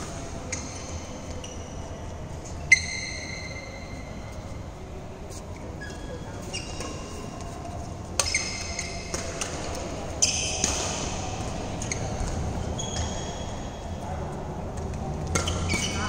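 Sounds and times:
shoes squeaking on court: 0:00.0 - 0:04.6, 0:05.2 - 0:13.9, 0:14.7 - 0:16.0
rackets striking shuttlecock: 0:08.2 - 0:13.2, 0:14.7 - 0:16.0.

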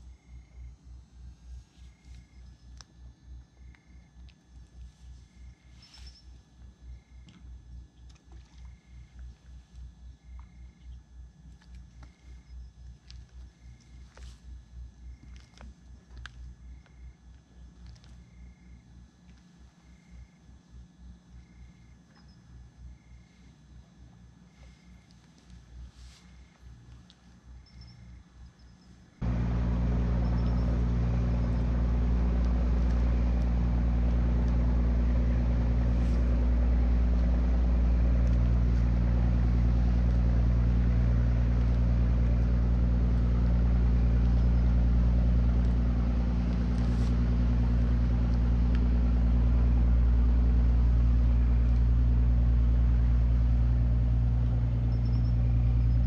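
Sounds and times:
engine droning: 0:00.0 - 0:56.0
faint ticks: 0:01.8 - 0:06.2, 0:06.9 - 0:20.6, 0:24.1 - 0:29.4, 0:30.1 - 0:34.7, 0:38.0 - 0:49.0.

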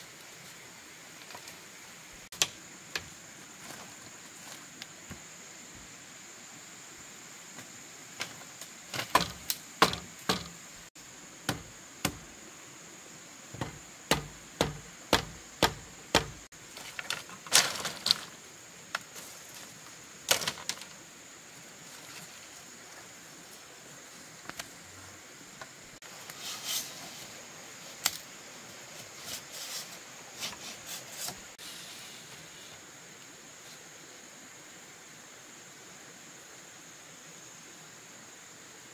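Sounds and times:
bamboo poles knocking together: 0:02.3 - 0:03.9, 0:08.2 - 0:10.6, 0:11.5 - 0:12.3, 0:13.6 - 0:19.2, 0:20.3 - 0:21.0.

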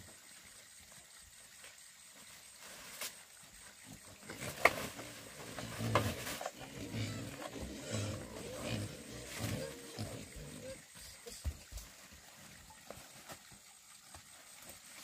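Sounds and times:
farm animal growling calls: 0:03.9 - 0:11.2.

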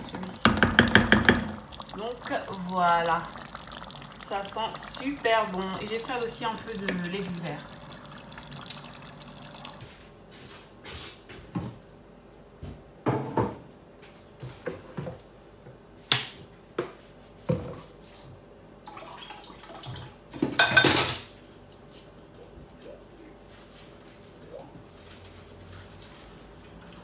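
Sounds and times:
water dripping and splashing: 0:00.0 - 0:10.0.

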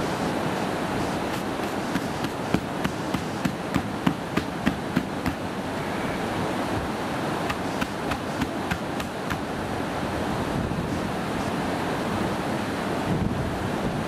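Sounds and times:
stream water rushing: 0:00.0 - 0:14.0
sharp knocks: 0:01.3 - 0:05.4, 0:07.5 - 0:09.4.

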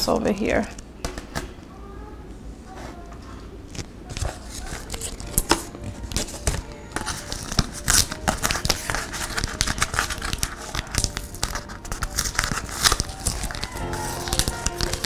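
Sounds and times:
plastic film crinkling: 0:03.6 - 0:15.0
tape peeling crackles: 0:03.6 - 0:15.0.

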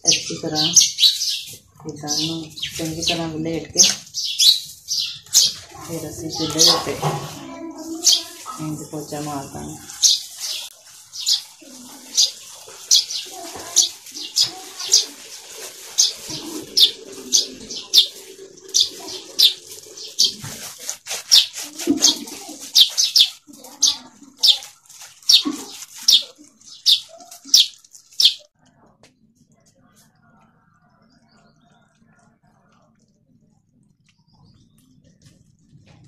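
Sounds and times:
small bird chirping: 0:00.0 - 0:07.0, 0:08.0 - 0:08.6, 0:09.9 - 0:15.2, 0:15.8 - 0:20.5, 0:21.2 - 0:28.5
hand smearing wet clay: 0:20.2 - 0:23.4.

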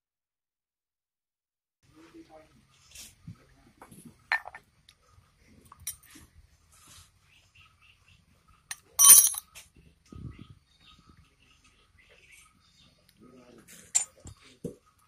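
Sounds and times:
metal gears clinking: 0:08.7 - 0:09.4.

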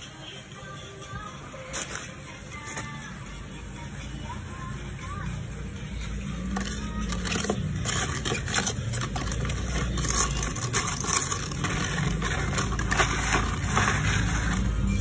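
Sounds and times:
rustling and scraping handling noise: 0:01.0 - 0:15.0.

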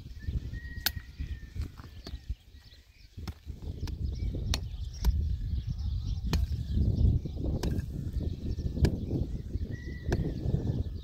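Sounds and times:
hand pick striking stony soil: 0:00.7 - 0:02.2, 0:03.2 - 0:05.3, 0:06.2 - 0:10.5.

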